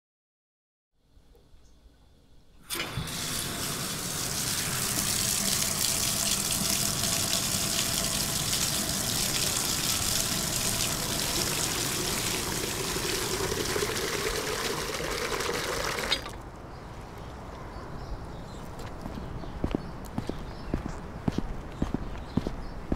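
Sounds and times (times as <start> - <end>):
water gushing into container: 2.7 - 16.5.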